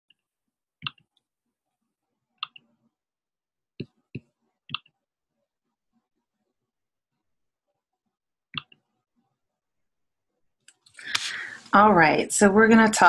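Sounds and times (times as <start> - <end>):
computer mouse clicks: 0.8 - 1.2, 2.4 - 2.7, 8.5 - 8.8.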